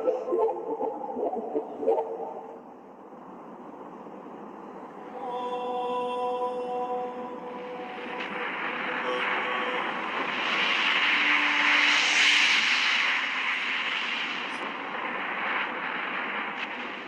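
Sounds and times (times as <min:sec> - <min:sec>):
whooshing rush: 0:07.7 - 0:17.0.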